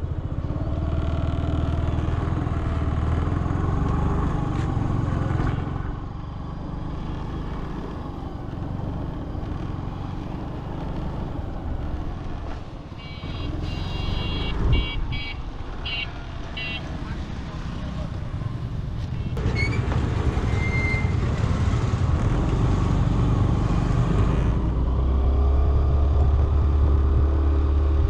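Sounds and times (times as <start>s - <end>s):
road and wind noise: 0.0s - 28.0s
vehicle horn honking: 13.0s - 16.9s.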